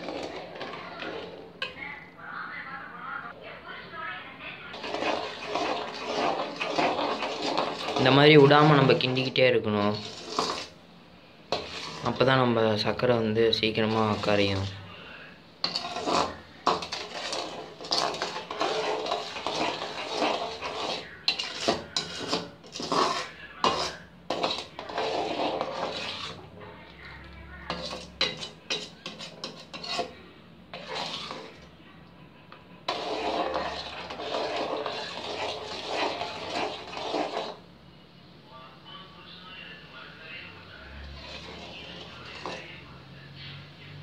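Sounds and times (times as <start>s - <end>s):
metal ladle scraping a pan: 0.0s - 1.8s, 4.7s - 10.8s, 11.5s - 26.6s, 27.6s - 31.7s, 32.8s - 37.7s, 40.9s - 42.9s.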